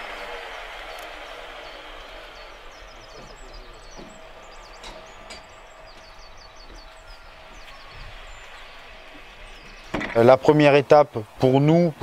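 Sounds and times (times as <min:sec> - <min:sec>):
small birds chirping: 0:00.0 - 0:12.0
wooden knocks: 0:09.6 - 0:10.3.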